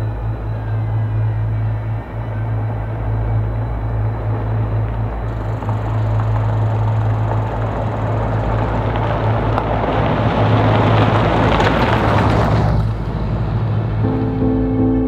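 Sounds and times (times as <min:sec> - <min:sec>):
steady low hum: 0:00.0 - 0:11.9, 0:12.8 - 0:15.0
van engine running: 0:00.0 - 0:15.0.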